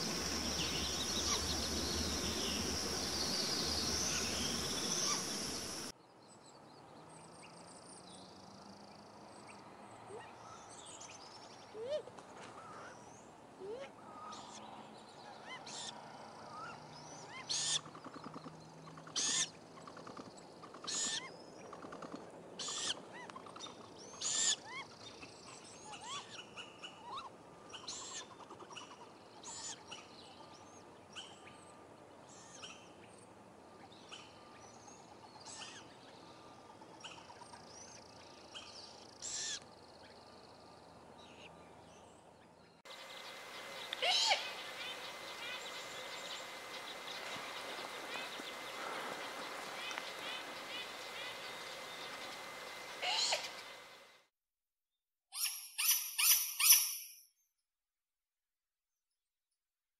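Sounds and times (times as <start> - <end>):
small birds chirping: 0.0 - 7.5, 33.8 - 54.2
owls screeching: 44.0 - 45.7, 53.0 - 53.6.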